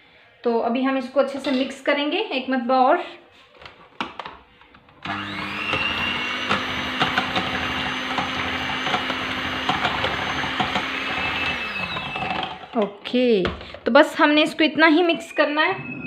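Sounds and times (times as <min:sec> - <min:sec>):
electric hand mixer whine: 0:05.0 - 0:12.8.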